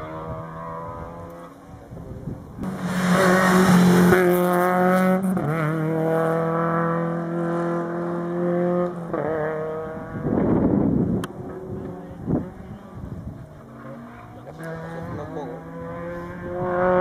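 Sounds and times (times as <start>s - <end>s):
rally car engine high revs: 2.6s - 10.4s, 13.7s - 17.0s.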